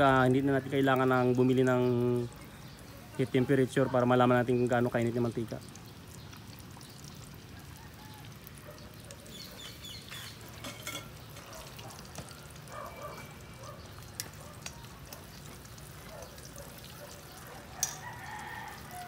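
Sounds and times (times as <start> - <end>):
chicken sizzling in hot oil: 0.0 - 19.0
spoon tapping pan: 10.5 - 11.5, 17.8 - 18.0.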